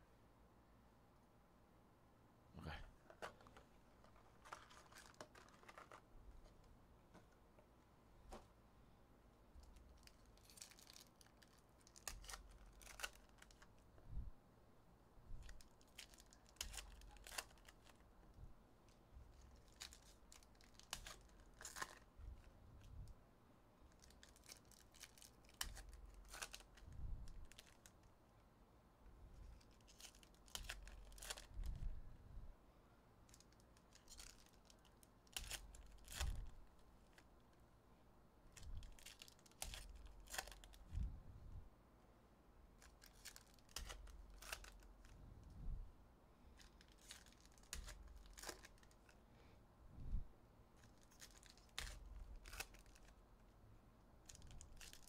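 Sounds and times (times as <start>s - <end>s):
foil wrappers crinkling and tearing: 4.4s - 6.0s, 9.8s - 13.6s, 15.4s - 18.0s, 19.5s - 22.1s, 23.9s - 27.9s, 38.8s - 40.8s, 46.6s - 49.1s, 50.9s - 53.1s, 54.3s - 55.0s.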